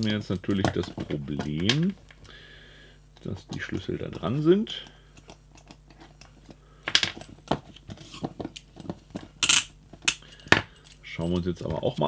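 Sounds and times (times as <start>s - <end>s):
handcuffs clicking and clinking: 9.4s - 11.5s.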